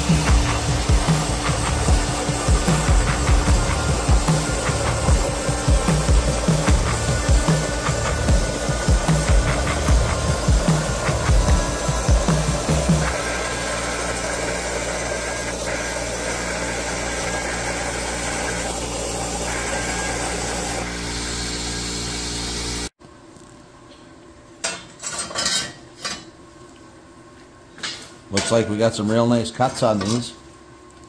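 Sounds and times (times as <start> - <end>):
low machine hum: 0.0 - 22.9
plasma arc hissing: 0.0 - 22.9.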